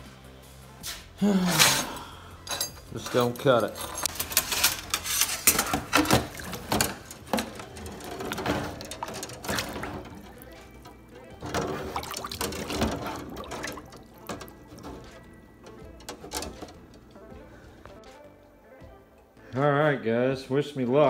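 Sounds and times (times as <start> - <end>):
water sloshing in a steel sink: 4.2 - 16.7
sharp knocks and splashes: 5.7 - 10.4, 11.4 - 14.9.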